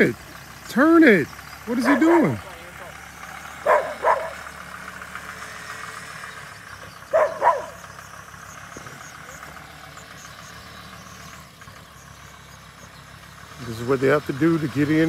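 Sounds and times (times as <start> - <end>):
faint car engine running: 0.0 - 15.0
short dog barks: 3.6 - 4.4, 7.1 - 7.8.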